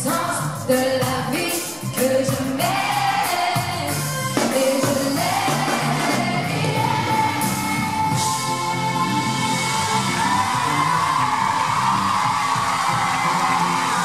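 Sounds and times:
woman singing into microphone: 0.0 - 9.7
band with electric guitar: 0.0 - 14.0.

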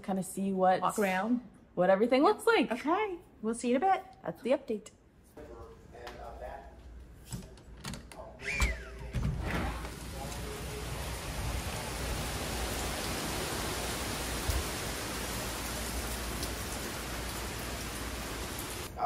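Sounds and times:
door squeaking open: 8.4 - 10.0
rain on pavement and foliage: 9.7 - 18.9.

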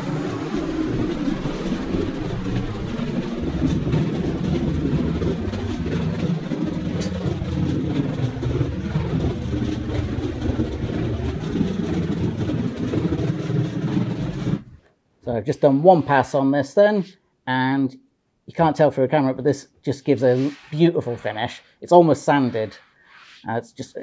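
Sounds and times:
workshop machinery rumbling: 0.0 - 17.0.

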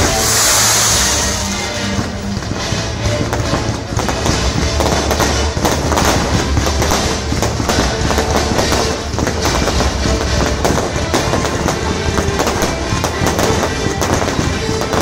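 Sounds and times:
fireworks bangs and crackles: 0.0 - 15.0.

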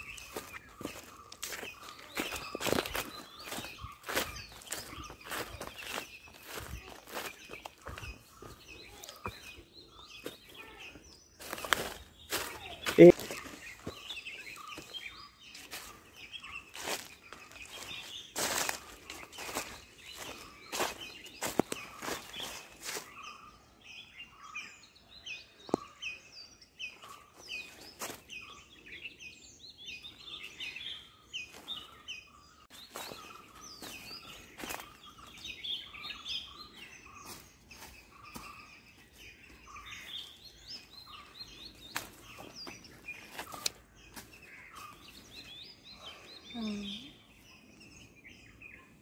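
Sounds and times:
footsteps crunching dry leaves: 0.0 - 23.3, 27.0 - 28.5, 32.7 - 45.6
small birds chirping: 0.0 - 49.0.

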